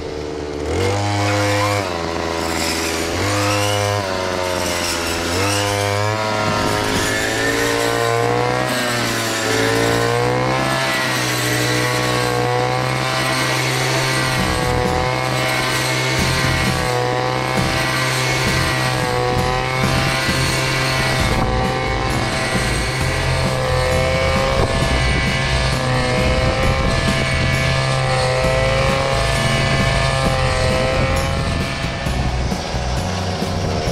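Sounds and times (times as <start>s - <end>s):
engine revving: 0.0s - 33.9s.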